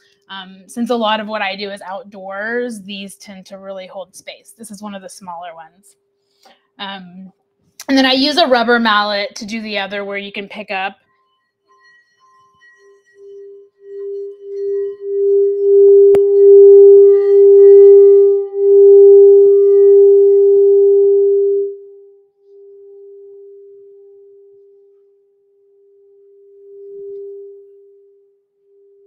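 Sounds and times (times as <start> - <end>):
singing bowl hum: 11.0 - 29.0.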